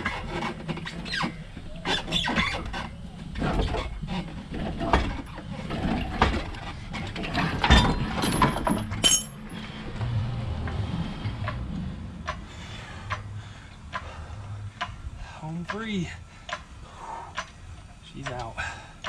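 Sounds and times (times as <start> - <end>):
low steady hum: 2.6 - 19.0
metallic clinks and knocks: 7.6 - 9.6.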